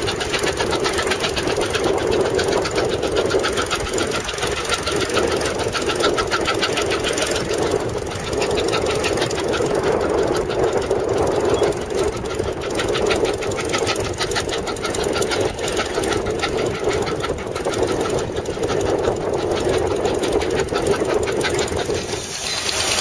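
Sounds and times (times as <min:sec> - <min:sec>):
steady rushing noise: 0:00.0 - 0:23.0
steam engine exhaust chuffing: 0:00.0 - 0:23.0.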